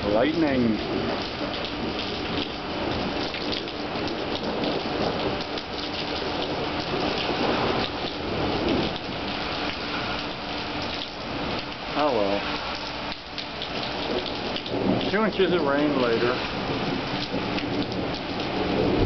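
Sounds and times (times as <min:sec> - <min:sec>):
low rumble of thunder: 0:00.0 - 0:11.9, 0:13.4 - 0:19.0
heavy rain on pavement: 0:00.0 - 0:19.0.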